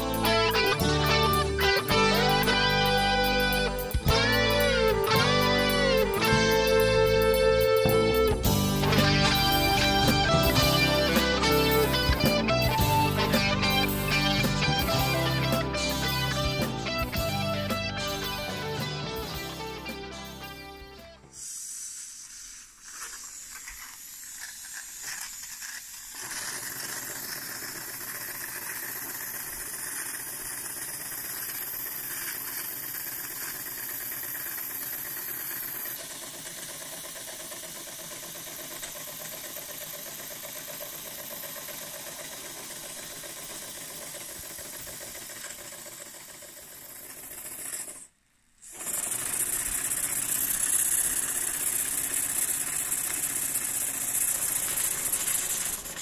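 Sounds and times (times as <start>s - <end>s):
steady steam hiss: 21.2s - 26.4s
steam engine exhaust chuffs: 21.2s - 47.8s, 48.6s - 56.0s.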